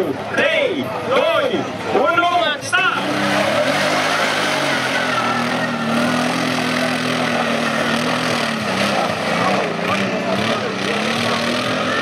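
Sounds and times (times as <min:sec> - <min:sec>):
quad bike engine under load: 0:03.1 - 0:12.0.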